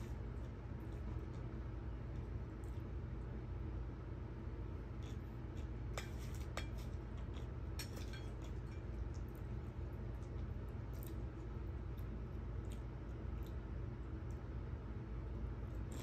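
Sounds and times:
steady low hum: 0.0s - 16.0s
cutlery clinking against a dish: 6.0s - 8.9s.

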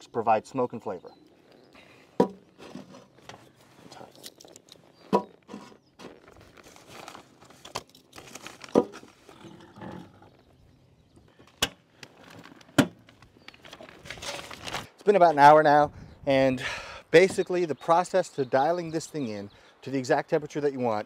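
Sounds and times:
crunching and scraping: 1.2s - 15.0s
wood knocking on metal: 2.2s - 2.9s.

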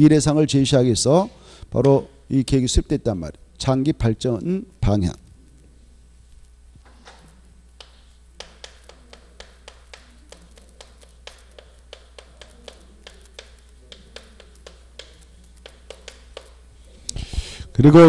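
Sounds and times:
chalk tapping on chalkboard: 7.8s - 16.6s.

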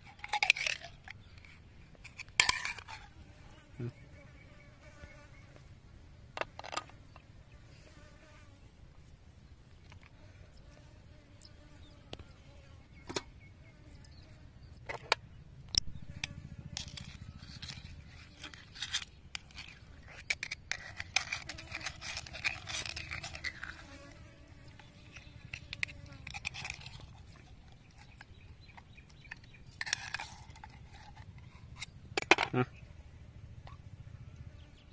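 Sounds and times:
fly buzzing: 2.6s - 5.7s, 6.4s - 8.7s, 9.8s - 14.5s, 15.8s - 28.2s.

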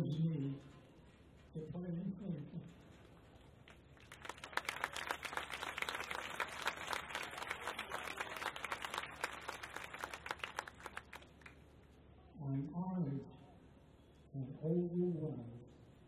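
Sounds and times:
crowd applauding: 4.0s - 11.6s.

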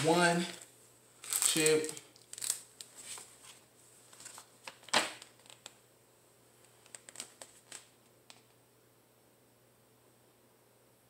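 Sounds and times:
cardboard rustling and crinkling: 1.2s - 5.7s
cardboard sharp crack: 4.2s - 5.7s.

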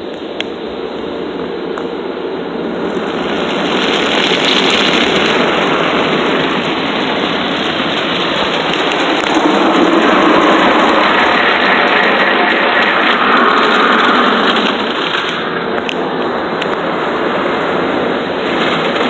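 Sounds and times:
water jets spraying on a car: 2.8s - 16.0s.

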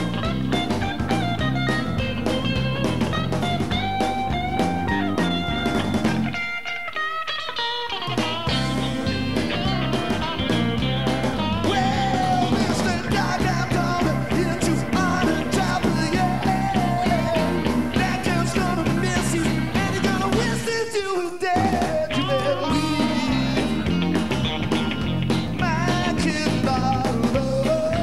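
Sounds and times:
rock band playing: 0.0s - 28.0s
man singing lead vocals: 11.5s - 23.8s, 25.6s - 28.0s.

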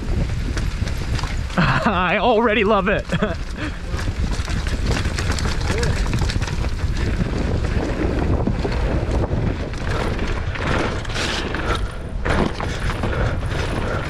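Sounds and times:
bike rattling over rough trail: 0.0s - 14.0s
tyre noise: 0.0s - 14.0s
wind rushing over microphone: 0.0s - 14.0s
loud clatter: 3.0s - 14.0s.

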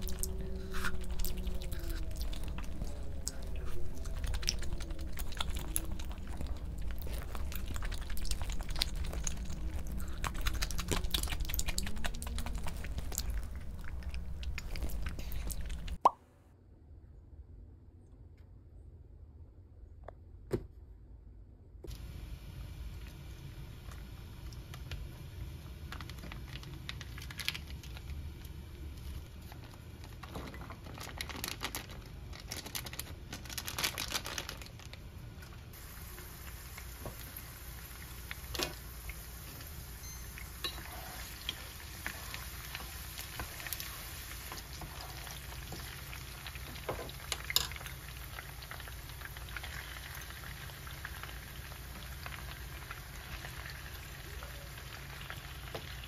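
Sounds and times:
food sizzling on a stove: 35.7s - 56.0s.

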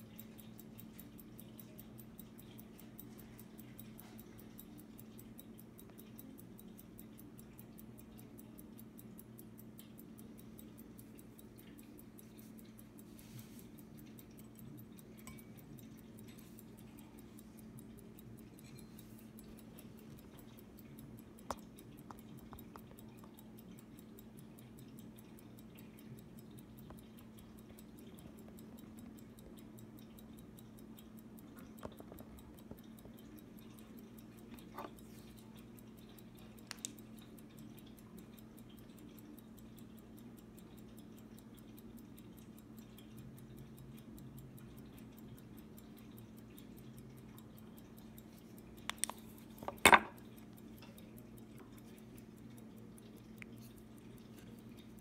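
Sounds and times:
pocket watch ticking: 0.0s - 55.0s
sharp clicks: 44.8s - 55.0s.

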